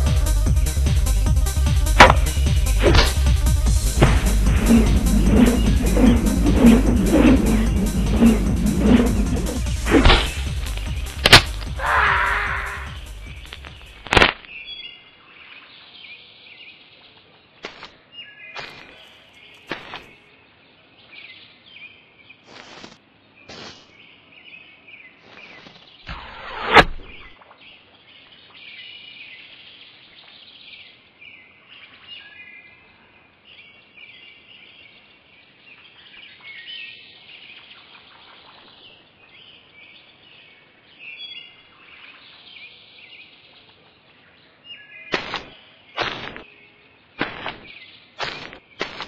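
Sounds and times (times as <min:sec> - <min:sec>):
small birds chirping: 0:00.0 - 0:26.4, 0:27.1 - 0:49.0
sharp knocks: 0:02.0 - 0:03.3
whoosh with sharp crack: 0:02.0 - 0:11.8, 0:26.1 - 0:27.3.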